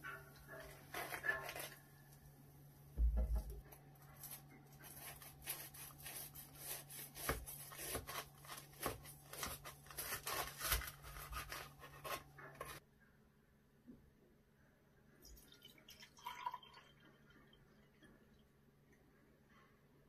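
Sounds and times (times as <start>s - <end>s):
knife sawing through fried crust: 4.7s - 12.8s.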